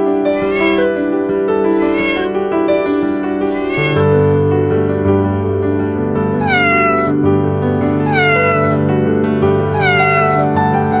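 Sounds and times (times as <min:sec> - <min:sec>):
background music: 0:00.0 - 0:11.0
cat meowing: 0:00.1 - 0:04.2, 0:06.4 - 0:07.2, 0:08.0 - 0:08.9, 0:09.7 - 0:11.0.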